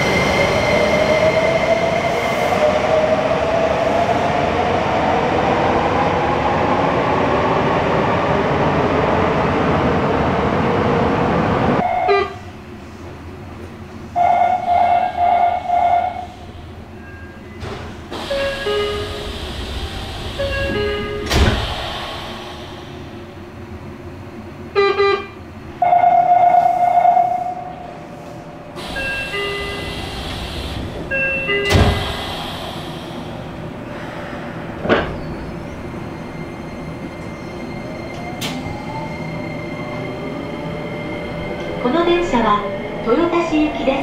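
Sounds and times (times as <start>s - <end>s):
train inverter whine: 10.1s - 44.0s
train doors thumping: 17.5s - 23.4s, 28.8s - 33.8s, 34.7s - 35.6s, 38.1s - 38.8s.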